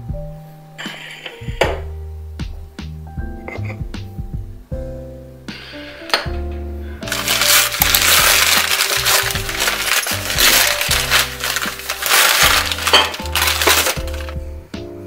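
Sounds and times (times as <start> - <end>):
background music: 0.0 - 15.0
packing wrap crinkling: 7.1 - 14.4.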